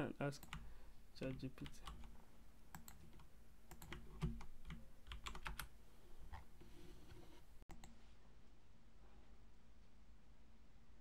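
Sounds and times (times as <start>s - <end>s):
keyboard keys tapping: 2.7s - 5.7s.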